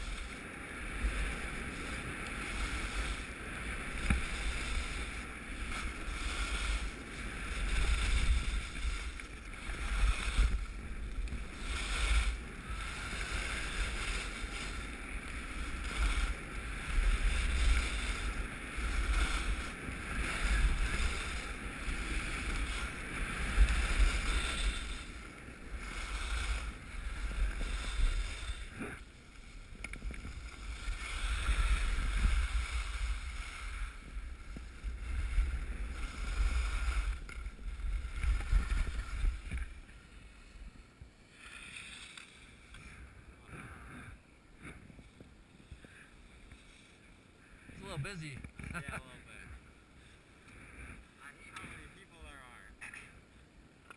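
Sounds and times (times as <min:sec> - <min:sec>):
wind rumbling on microphone: 0:00.0 - 0:41.2
skis scraping on snow: 0:00.0 - 0:53.9.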